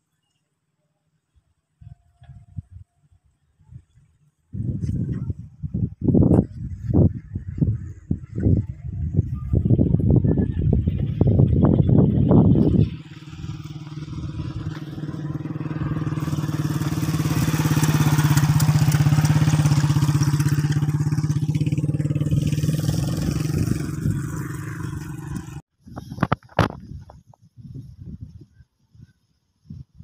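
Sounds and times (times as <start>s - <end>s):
motorcycle engine running: 4.6s - 25.6s.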